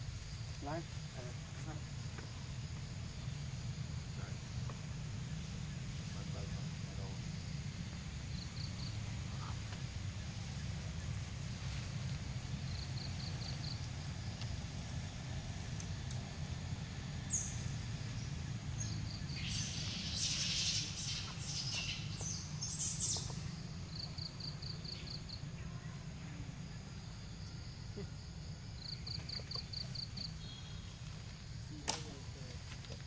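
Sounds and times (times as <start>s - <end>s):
sharp click: 31.8s - 32.1s.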